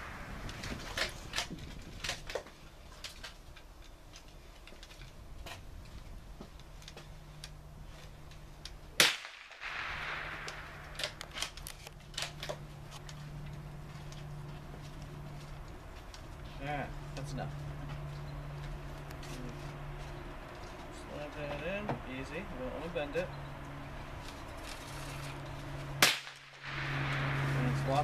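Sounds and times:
rifle handling clicks and knocks: 0:00.4 - 0:09.5, 0:10.4 - 0:16.4
gunshot: 0:09.0 - 0:11.1, 0:26.0 - 0:28.0.

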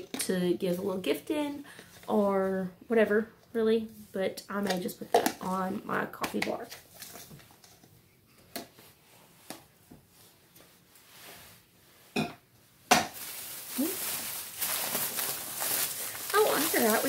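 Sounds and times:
plastic bag crinkling: 0:13.1 - 0:17.0.

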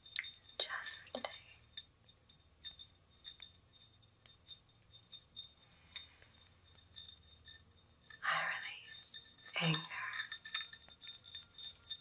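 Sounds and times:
glass candle holder clinking: 0:00.0 - 0:12.0
low room hum: 0:00.0 - 0:12.0.

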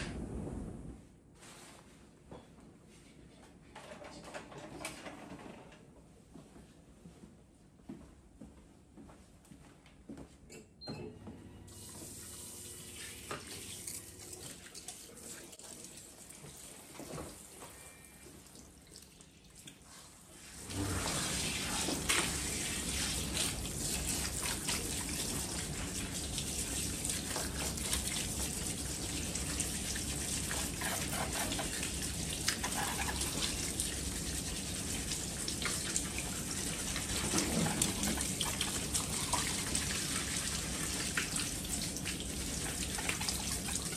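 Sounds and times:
shower sprayer rushing water: 0:11.7 - 0:17.4, 0:19.8 - 0:43.9.

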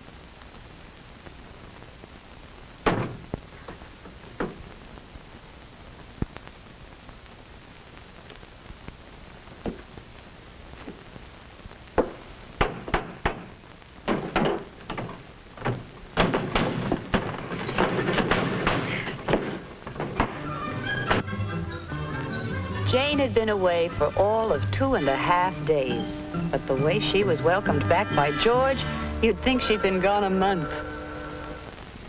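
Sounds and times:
film soundtrack hiss: 0:00.0 - 0:32.0
cabinet doors opening and shutting: 0:02.8 - 0:03.2, 0:14.1 - 0:21.5
things knocking and clattering: 0:14.1 - 0:20.5.

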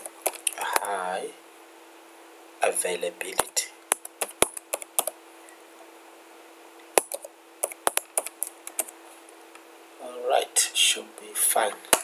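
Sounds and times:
keyboard typing: 0:00.0 - 0:00.9, 0:03.4 - 0:05.2, 0:07.0 - 0:09.0
faint steady hum: 0:00.0 - 0:12.0.

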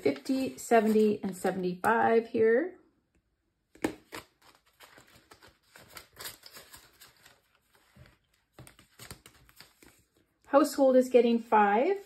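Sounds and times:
banknotes rustling and crinkling: 0:00.0 - 0:01.9, 0:03.7 - 0:10.7.

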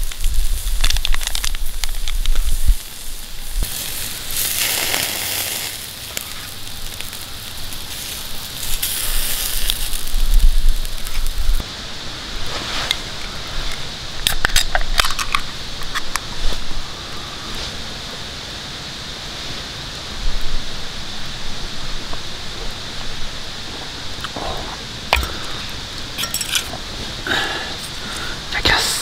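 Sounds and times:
meat sizzling on grill: 0:00.0 - 0:18.0
campfire crackling: 0:00.0 - 0:29.0.

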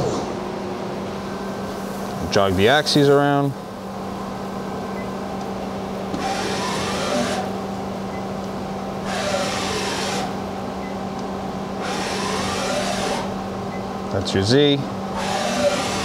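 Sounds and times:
steady machine hum: 0:00.0 - 0:16.0
servo whine: 0:06.1 - 0:07.6, 0:09.0 - 0:10.5, 0:11.8 - 0:13.5, 0:15.1 - 0:16.0.

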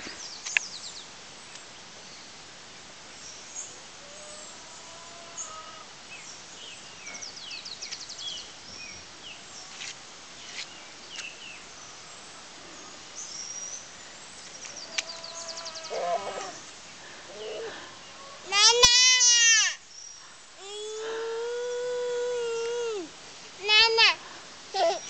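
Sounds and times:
birds chirping and trilling: 0:03.2 - 0:09.7, 0:10.4 - 0:18.5.

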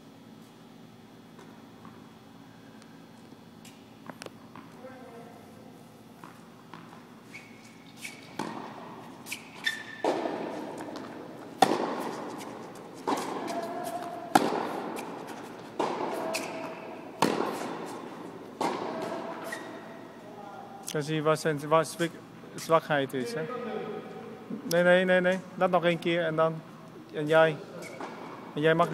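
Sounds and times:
racket strings hitting tennis ball: 0:08.2 - 0:19.6.

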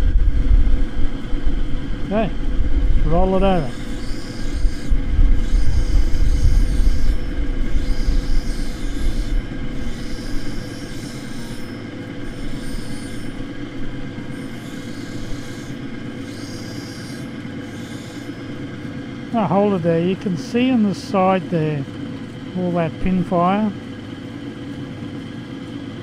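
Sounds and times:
grinding motor hum: 0:00.0 - 0:26.0
glass grinding on wet wheel: 0:06.9 - 0:13.4, 0:14.3 - 0:18.4.

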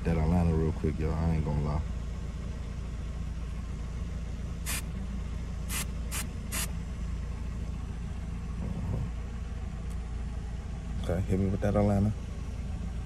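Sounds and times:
car engine idling: 0:00.0 - 0:13.0
spray bottle spritzes: 0:05.7 - 0:06.7.

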